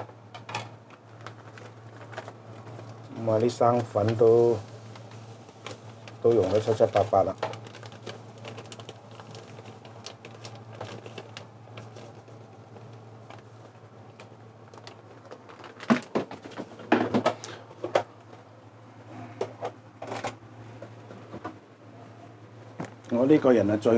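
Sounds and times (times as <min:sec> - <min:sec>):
steady low hum: 0:00.0 - 0:23.9.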